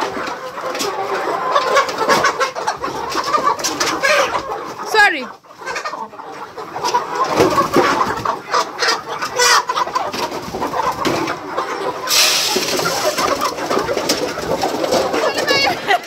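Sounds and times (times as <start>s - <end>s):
chickens clucking: 0.0s - 16.0s
hissing or rustling noise: 12.0s - 13.5s.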